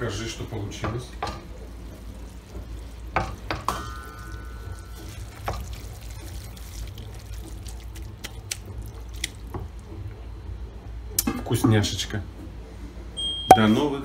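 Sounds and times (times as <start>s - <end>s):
wooden spoon stirring in pot: 0.1s - 10.1s.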